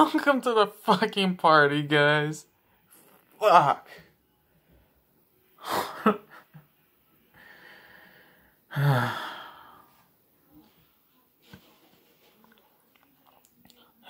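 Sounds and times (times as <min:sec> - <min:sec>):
man sighing: 0:08.7 - 0:09.8.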